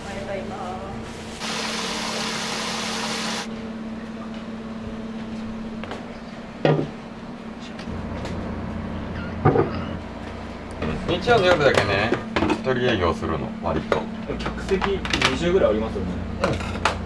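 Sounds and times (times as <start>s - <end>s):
steady low hum: 3.4s - 14.4s.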